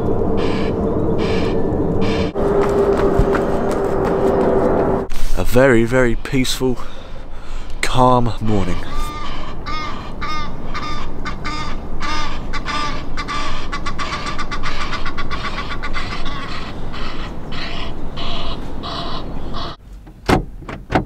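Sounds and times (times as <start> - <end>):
birds calling harshly: 0.4 - 2.4, 5.8 - 19.8.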